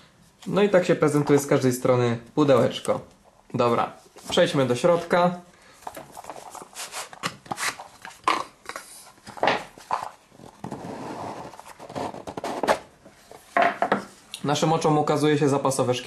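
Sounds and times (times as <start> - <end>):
cardboard box rubbing and scraping: 10.6 - 12.8.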